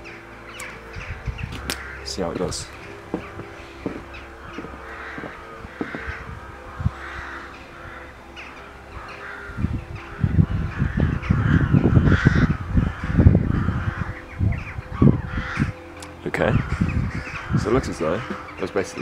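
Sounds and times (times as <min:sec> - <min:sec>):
wind buffeting microphone: 0:00.0 - 0:18.6
crows cawing: 0:00.0 - 0:19.0.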